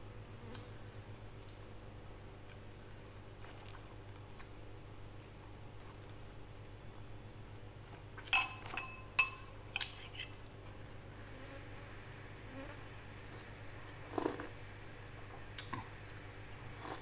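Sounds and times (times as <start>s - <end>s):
sharp clinks with ringing: 8.3s - 9.6s.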